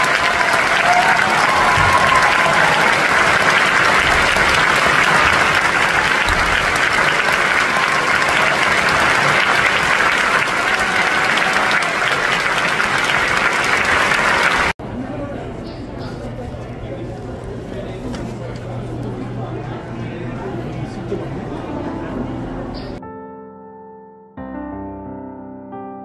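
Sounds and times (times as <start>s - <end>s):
audience applauding: 0.0s - 14.8s.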